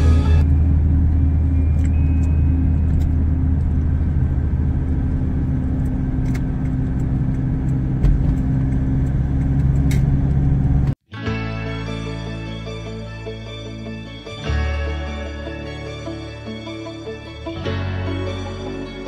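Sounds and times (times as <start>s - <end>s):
car engine and tyre drone: 0.0s - 11.0s.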